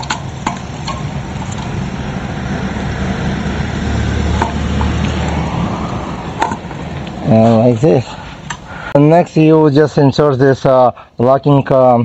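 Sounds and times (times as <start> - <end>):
low steady rumble: 0.0 - 9.0.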